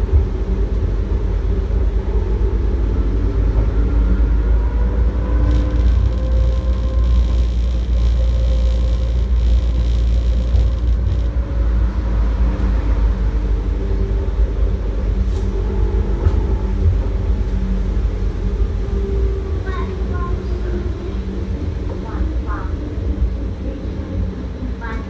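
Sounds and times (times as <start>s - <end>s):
faint humming tones: 0.0s - 25.0s
train low rumble: 0.0s - 25.0s.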